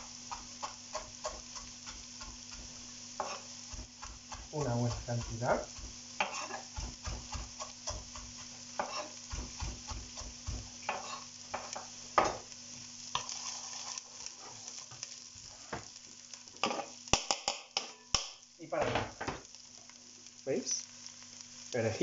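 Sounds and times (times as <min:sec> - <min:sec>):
vegetables sizzling in oil: 0:00.0 - 0:22.0
knife chopping on cutting board: 0:00.3 - 0:12.4.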